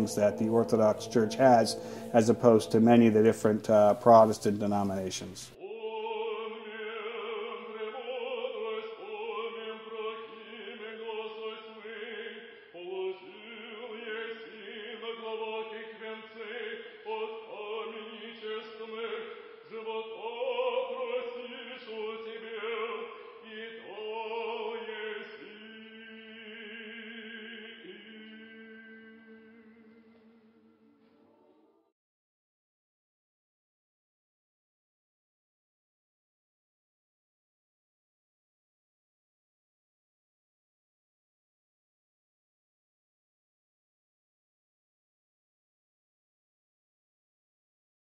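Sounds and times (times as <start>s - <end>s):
voices chanting slow melody: 0.0s - 31.5s
held vocal drone: 0.0s - 31.7s.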